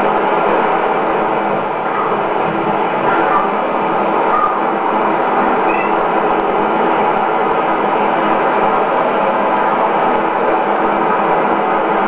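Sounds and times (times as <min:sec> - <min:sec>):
steady whirring with faint hum: 0:00.0 - 0:12.0.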